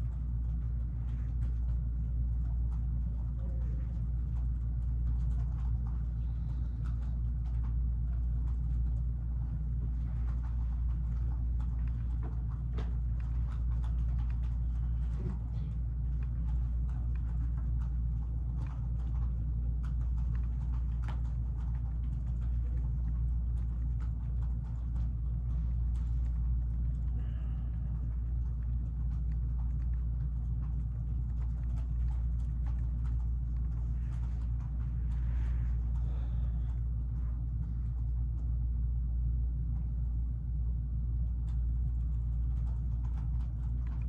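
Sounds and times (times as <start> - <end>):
light clicks and taps: 0.0 - 38.6.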